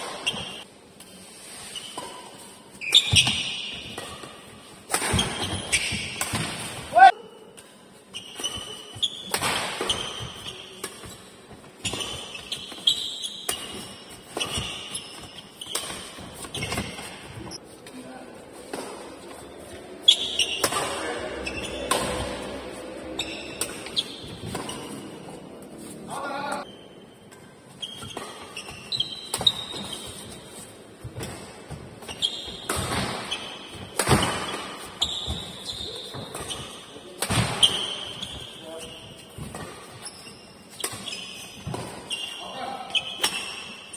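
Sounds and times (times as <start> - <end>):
sneakers squeaking: 0.0 - 43.9
racket hitting shuttlecock: 1.9 - 17.6, 18.6 - 25.4, 31.0 - 38.5, 40.7 - 43.9
rackets striking shuttlecock: 2.8 - 6.8, 20.1 - 25.0.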